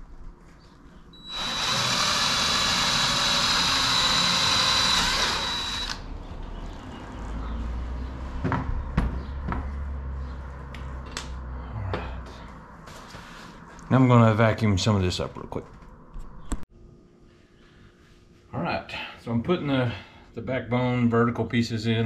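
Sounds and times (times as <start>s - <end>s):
cordless drill whining: 1.2s - 6.0s.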